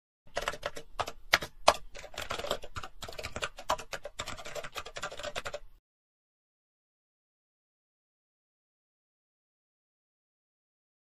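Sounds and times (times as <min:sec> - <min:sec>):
keyboard typing clicks: 0:00.3 - 0:05.6.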